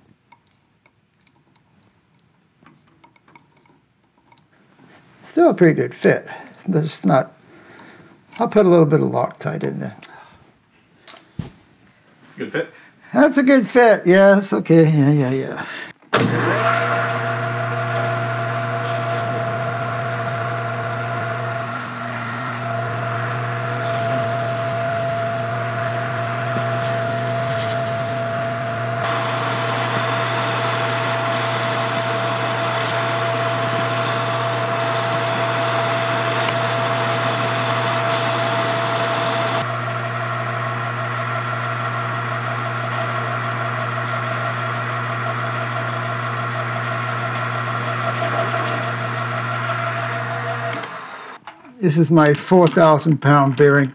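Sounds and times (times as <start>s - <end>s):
metal lathe motor hum and whine: 16.4s - 51.4s
harsh hissing cut: 22.8s - 39.7s
hand file scraping metal: 23.6s - 39.7s.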